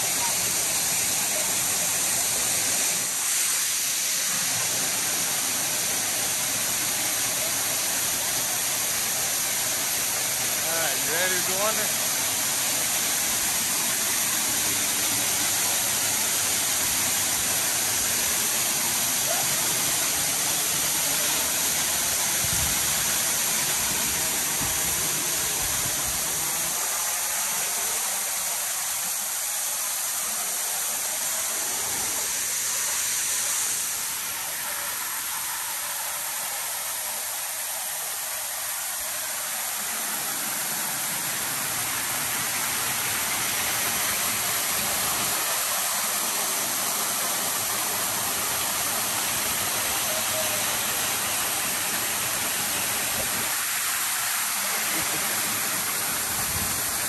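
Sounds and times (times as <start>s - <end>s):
waterfall rushing: 0.0s - 57.0s.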